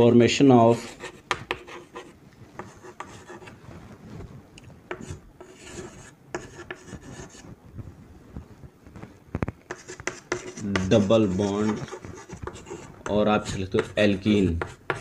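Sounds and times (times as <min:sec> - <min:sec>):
chalk scratching on chalkboard: 0:00.7 - 0:03.6, 0:04.9 - 0:07.5, 0:09.7 - 0:15.0
chalk tapping on chalkboard: 0:00.8 - 0:03.5, 0:04.9 - 0:07.4, 0:09.7 - 0:15.0.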